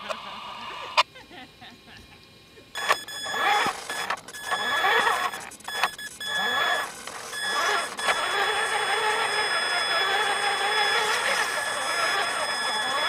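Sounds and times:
rc truck motor whine: 2.8 - 13.0.

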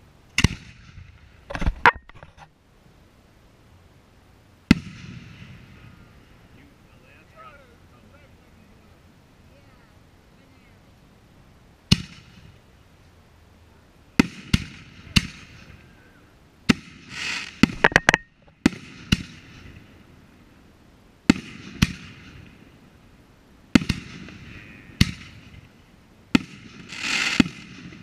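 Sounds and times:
firework shells bursting: 11.9 - 12.6, 16.6 - 20.0, 23.7 - 28.0
short rushing hiss: 16.7 - 18.8, 26.8 - 27.7.

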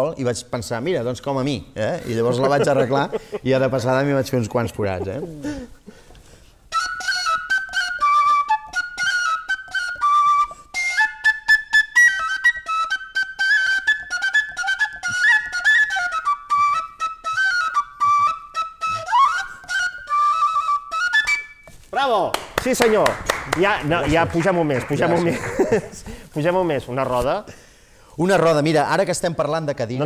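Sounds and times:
breathy flute melody: 5.2 - 21.9.

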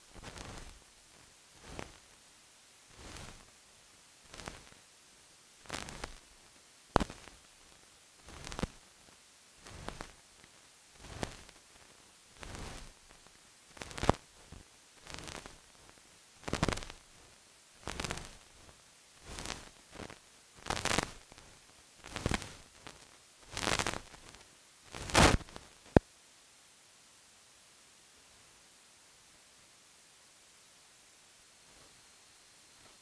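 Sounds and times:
crackling hiss bursts: 0.0 - 26.1.

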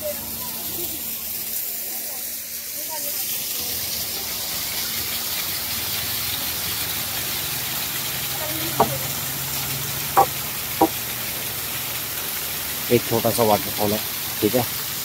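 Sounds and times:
small waterfall splashing: 0.0 - 15.0.

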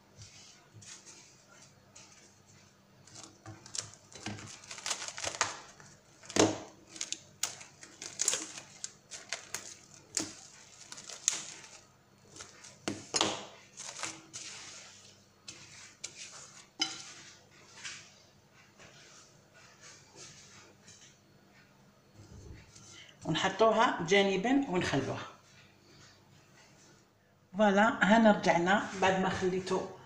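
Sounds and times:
cling film crinkling: 3.0 - 14.8.

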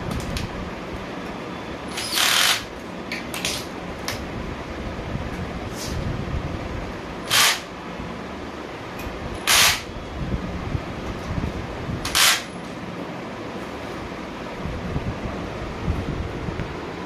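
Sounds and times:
cordless drill whirring: 1.9 - 2.7, 7.3 - 7.7, 9.4 - 9.9, 12.0 - 12.5.

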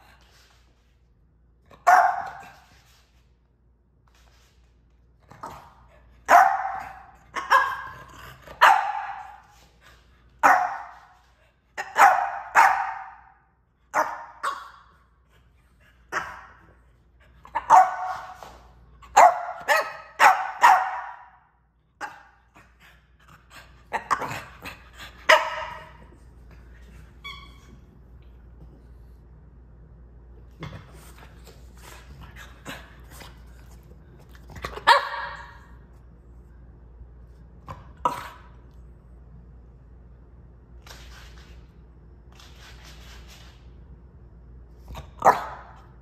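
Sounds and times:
puppy barking: 1.8 - 2.6, 6.3 - 9.5, 10.4 - 11.1, 11.8 - 14.8, 17.5 - 18.4, 19.1 - 21.4, 25.3 - 26.0, 34.8 - 35.7, 45.2 - 45.8.

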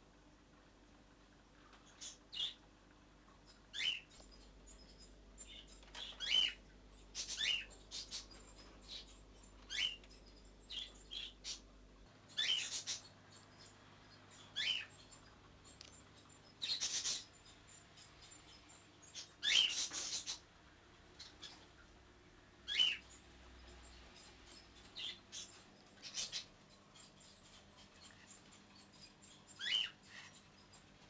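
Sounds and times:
small animal squeaking: 3.5 - 11.7, 12.3 - 20.5, 22.6 - 31.0.

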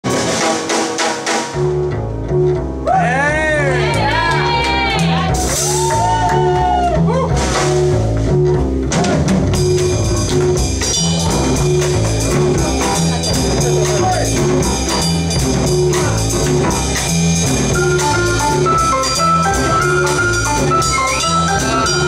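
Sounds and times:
double bass walking line: 1.5 - 22.0
piano chords: 5.1 - 22.0.

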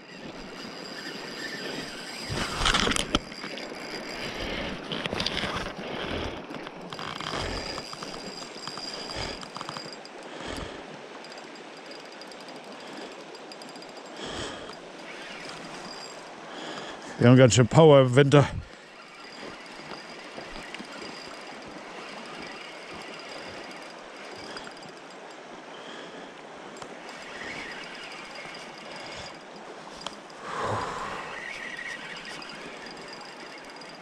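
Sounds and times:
fishing reel whirring and clicking: 0.0 - 17.3, 18.3 - 34.0
river rushing: 6.4 - 34.0
rustle: 14.1 - 17.2.

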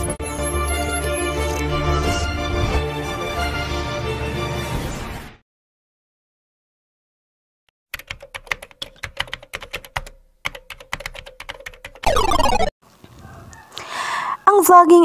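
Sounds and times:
electronic sweep: 12.0 - 12.7.

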